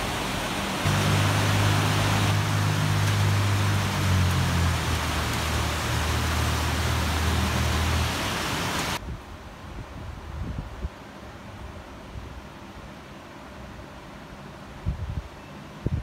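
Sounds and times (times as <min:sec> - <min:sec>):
steady rain falling: 0:00.0 - 0:09.7.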